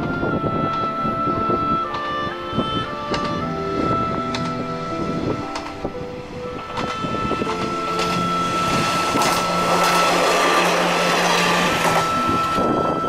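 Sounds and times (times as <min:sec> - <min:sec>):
diesel railcar passing: 0:00.0 - 0:13.0
train wheels on rails: 0:03.1 - 0:13.0.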